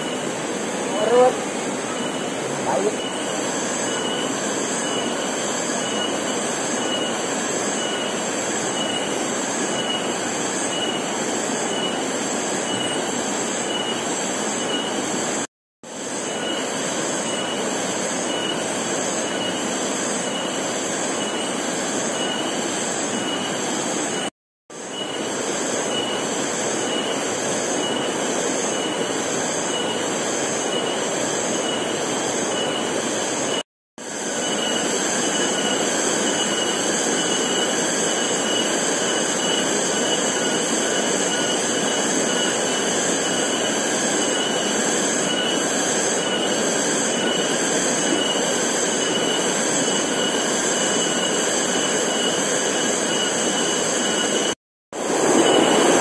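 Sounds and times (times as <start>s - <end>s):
insects buzzing: 0.0s - 15.4s.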